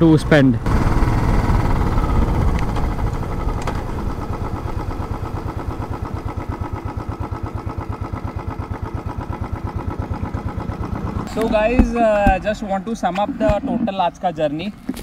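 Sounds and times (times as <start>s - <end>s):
motorcycle engine slowing: 0.0s - 15.0s.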